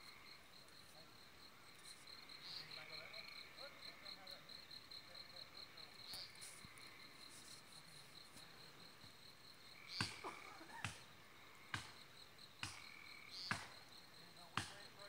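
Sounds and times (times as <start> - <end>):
high insect trill: 0.0 - 15.0
hatchet chopping wood: 11.7 - 12.0, 12.6 - 12.9, 13.5 - 13.8, 14.6 - 14.8.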